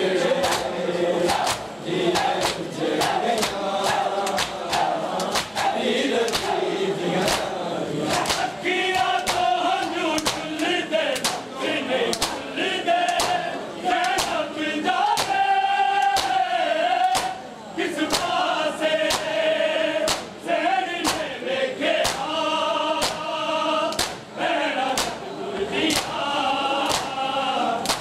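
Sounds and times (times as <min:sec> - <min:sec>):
men chanting together: 0:00.0 - 0:28.0
hands slapping chests: 0:00.4 - 0:00.7, 0:01.3 - 0:06.6, 0:07.2 - 0:07.5, 0:08.1 - 0:11.5, 0:12.1 - 0:12.4, 0:13.0 - 0:13.4, 0:14.0 - 0:14.4, 0:15.1 - 0:15.4, 0:16.0 - 0:16.4, 0:17.0 - 0:17.4, 0:18.1 - 0:18.3, 0:19.1 - 0:19.3, 0:20.1 - 0:20.4, 0:21.0 - 0:21.3, 0:22.0 - 0:22.3, 0:23.0 - 0:23.3, 0:23.9 - 0:24.3, 0:24.9 - 0:25.2, 0:25.9 - 0:26.2, 0:26.8 - 0:27.2.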